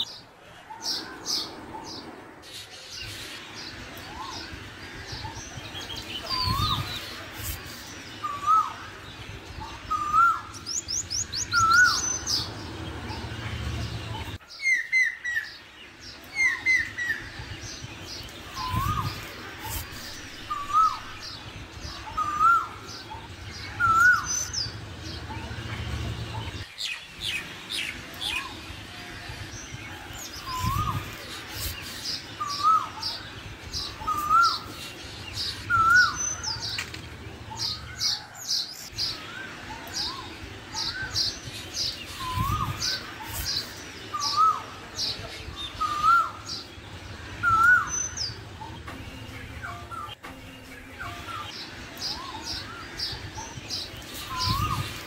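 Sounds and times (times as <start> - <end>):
small birds chirping: 0.0 - 55.0.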